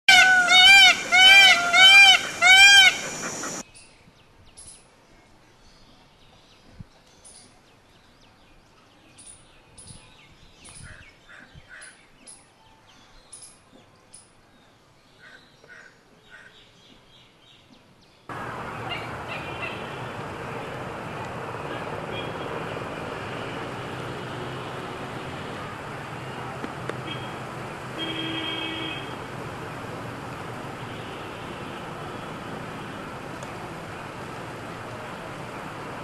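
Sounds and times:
peacock calling loudly: 0.1 - 3.6, 18.3 - 29.4
small birds chirping: 0.8 - 3.9
steady noise: 0.9 - 3.6.

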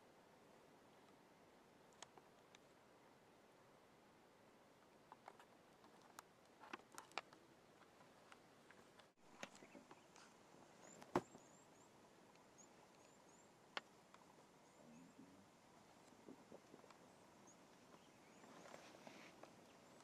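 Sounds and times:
faint clicks and taps: 4.8 - 11.4.

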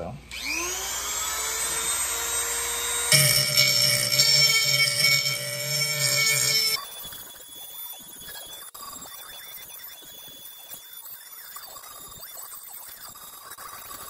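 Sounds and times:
rotary tool whine: 0.3 - 14.0
grinding stone on steel: 2.3 - 7.0.

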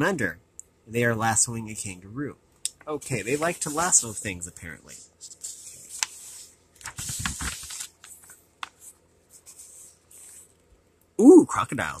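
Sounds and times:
book pages rustling: 2.8 - 4.4, 5.0 - 10.6.

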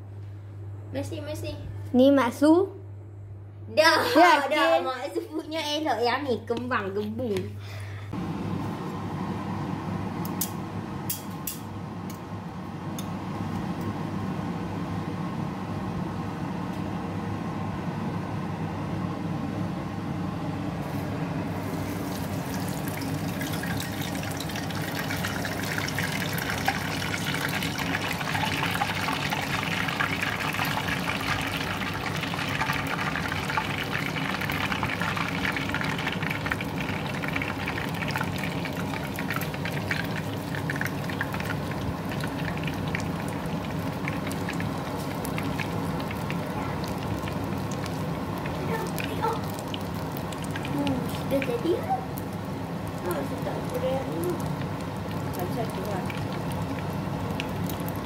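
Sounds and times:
oil sizzling in a pan: 21.6 - 58.0.

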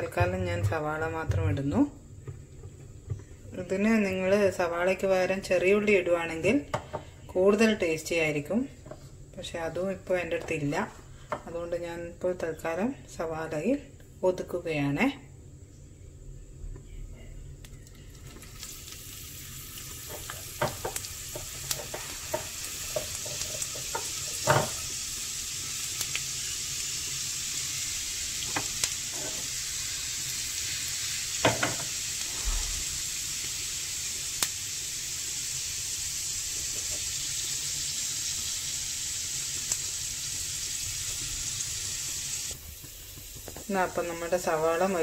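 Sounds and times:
onion sizzling in oil: 18.1 - 45.0.

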